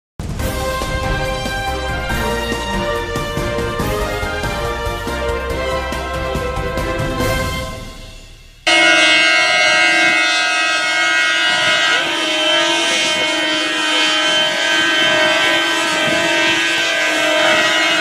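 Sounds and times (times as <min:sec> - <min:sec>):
horns blaring: 0:00.4 - 0:18.0
crowd voices: 0:11.4 - 0:18.0.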